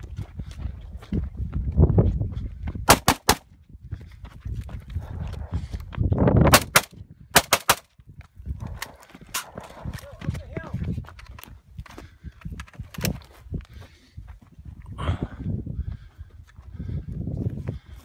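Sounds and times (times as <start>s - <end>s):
scuffing on dry dirt: 0.0s - 6.4s, 8.0s - 15.0s, 15.9s - 18.0s
running footsteps on dirt: 0.0s - 7.3s, 8.0s - 18.0s
rifle shots: 2.9s - 3.4s, 6.5s - 7.9s.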